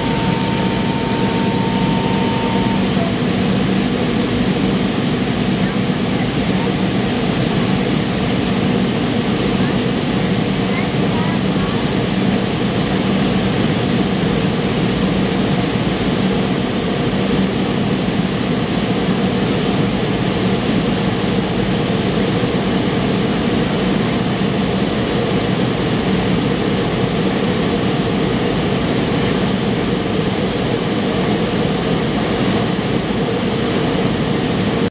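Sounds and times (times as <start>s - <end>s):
low even hum: 0.0s - 6.7s
jet engines droning: 0.0s - 34.9s
rush of air in cabin: 0.0s - 34.9s.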